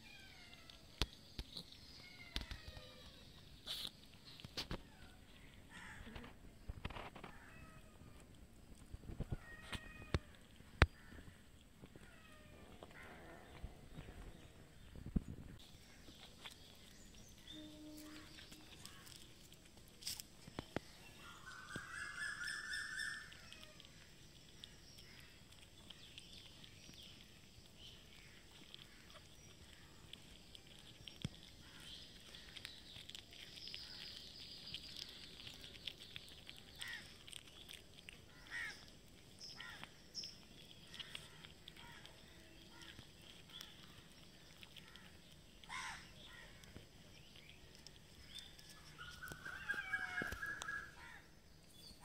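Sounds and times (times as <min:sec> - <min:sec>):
cats chewing: 0:00.0 - 0:52.0
cat meowing: 0:09.3 - 0:10.5.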